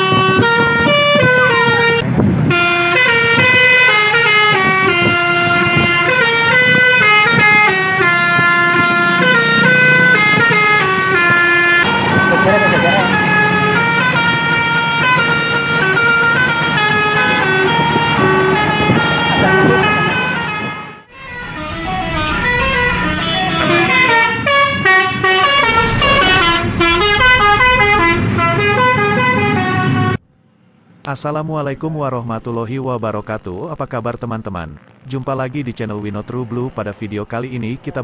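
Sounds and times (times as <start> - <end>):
bus multi-tone horn melody: 0.0 - 30.3
engine and road noise: 0.0 - 38.0.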